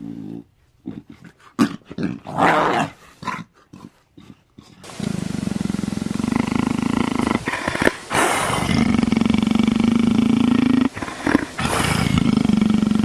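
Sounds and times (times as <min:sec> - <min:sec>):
lion purring: 0:00.0 - 0:13.0
noisy breath: 0:07.1 - 0:08.8, 0:10.4 - 0:12.1.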